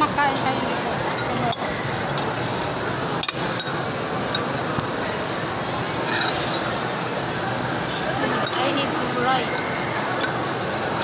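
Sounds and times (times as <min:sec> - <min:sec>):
busy mall background din: 0:00.0 - 0:11.0
cutlery clinking against dishes: 0:00.2 - 0:04.7, 0:06.0 - 0:06.7, 0:07.8 - 0:10.4.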